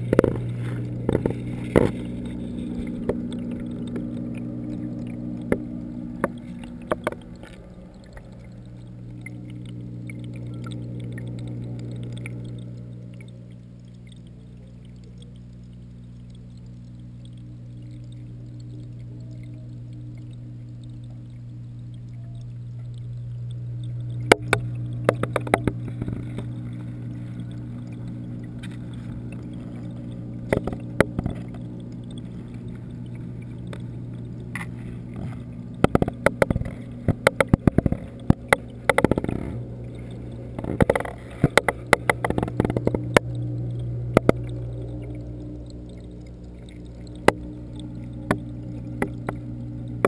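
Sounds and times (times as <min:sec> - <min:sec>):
sharp clicks and knocks: 0:00.0 - 0:04.2, 0:05.0 - 0:08.2, 0:24.0 - 0:26.6, 0:27.4 - 0:32.3, 0:33.1 - 0:47.5, 0:48.2 - 0:49.4
water pumps humming underwater: 0:00.0 - 0:50.0.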